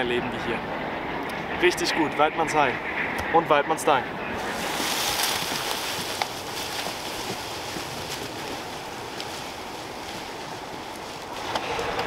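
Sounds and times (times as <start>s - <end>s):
dry leaves rustling: 4.4s - 12.0s.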